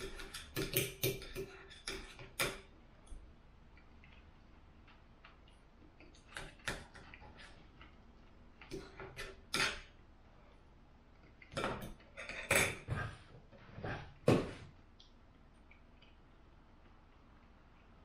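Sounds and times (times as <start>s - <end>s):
knife and fork scraping a plate: 0.0s - 2.6s, 11.7s - 12.9s.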